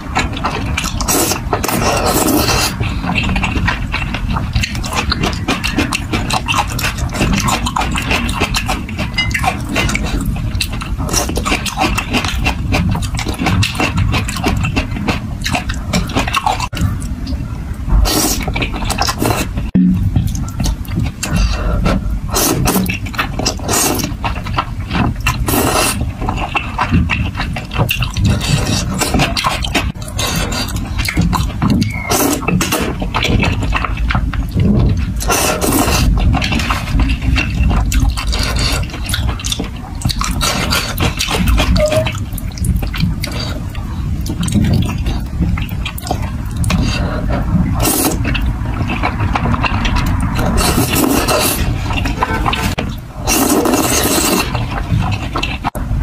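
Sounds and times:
chewing with mouth clicks: 0.0s - 55.8s
noodle slurp: 0.8s - 3.6s, 21.2s - 24.2s, 25.2s - 33.6s, 35.2s - 43.7s, 45.9s - 55.7s.

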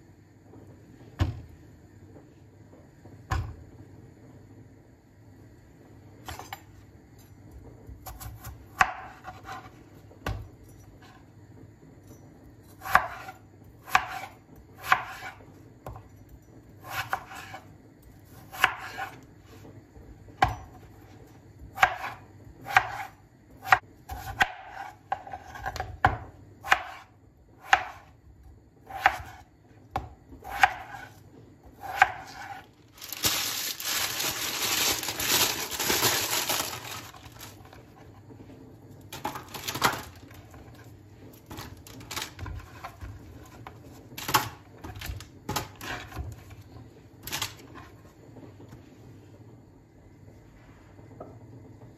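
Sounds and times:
baking paper rustling: 32.0s - 38.0s.

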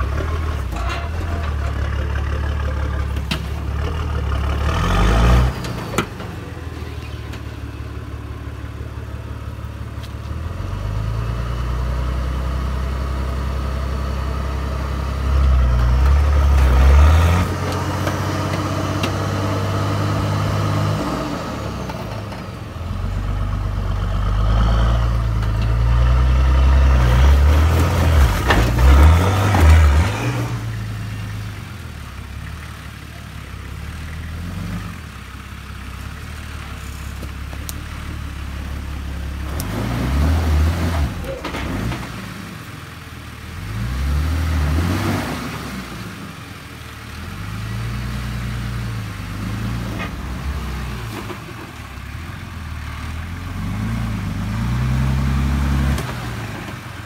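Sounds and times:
tyres scrabbling on dirt: 0.0s - 8.2s, 27.0s - 31.4s
diesel engine labouring: 0.0s - 57.0s.

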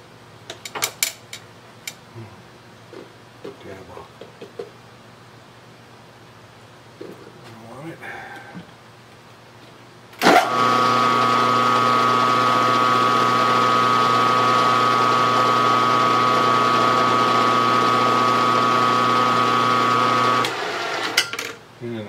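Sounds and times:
milling machine motor hum: 10.2s - 21.2s.

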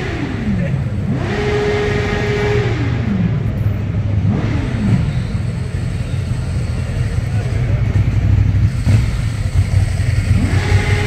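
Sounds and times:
motorcycle engine revving: 0.0s - 11.0s
motorcycle engines idling: 0.0s - 11.0s.

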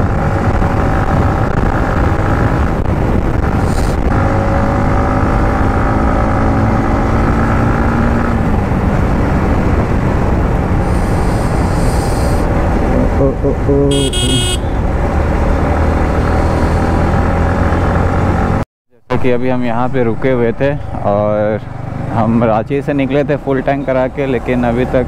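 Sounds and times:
wind noise on microphone: 0.0s - 5.7s
motorcycle engine running: 13.9s - 14.9s.

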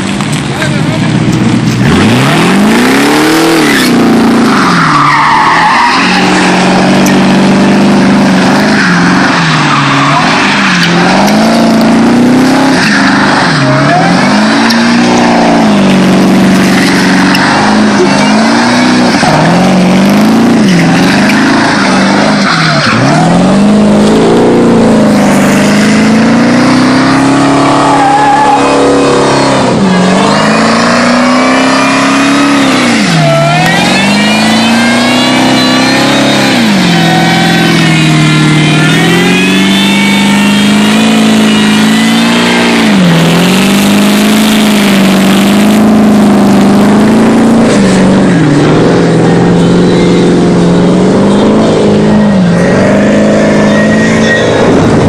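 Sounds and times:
tyres spinning and skidding: 0.0s - 55.0s
engine revving hard: 1.7s - 55.0s.

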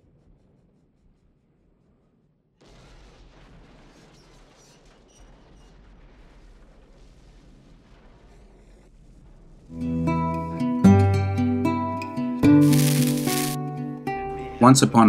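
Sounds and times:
explosion blast: 2.6s - 9.8s
debris crackling: 2.6s - 9.9s, 12.6s - 13.6s.

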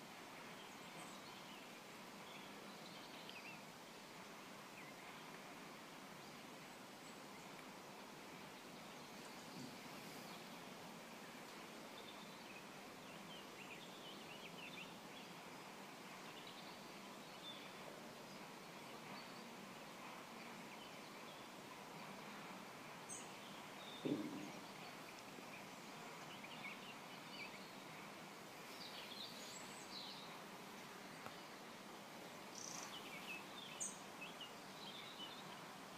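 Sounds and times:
steady low hiss: 0.0s - 35.9s
dull thump: 24.0s - 24.6s.

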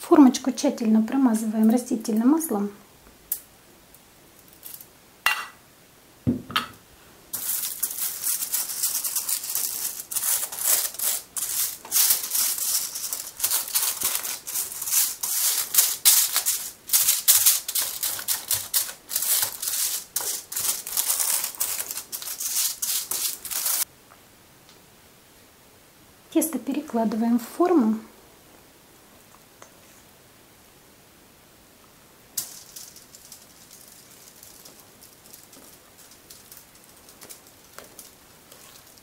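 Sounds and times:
brush scrubbing crinkled foil: 7.3s - 23.9s, 32.4s - 39.0s.

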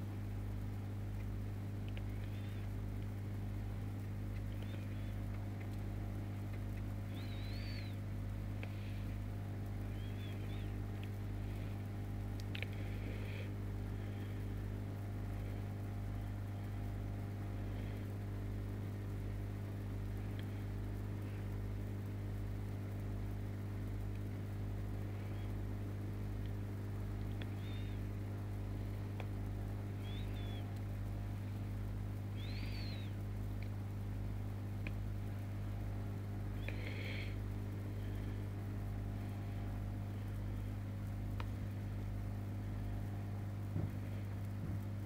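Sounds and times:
aquarium equipment humming: 0.0s - 45.0s
faint low pulsing: 0.0s - 45.0s
faint high chirps: 3.7s - 9.2s, 9.8s - 11.8s, 27.4s - 28.0s, 30.0s - 30.8s, 32.2s - 33.3s.

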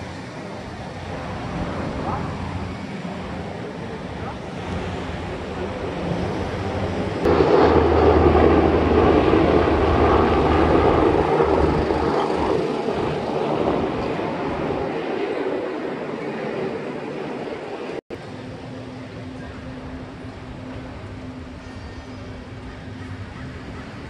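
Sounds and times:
engine low hum: 0.0s - 14.9s.

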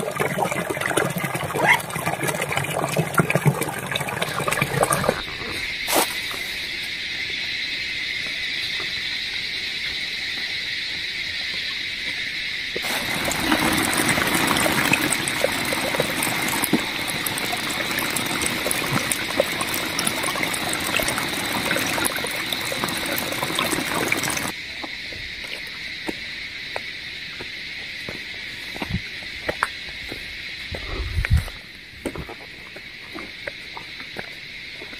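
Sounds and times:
stream trickling over rocks: 0.0s - 5.3s, 12.8s - 24.6s
high insect drone: 4.2s - 34.9s.

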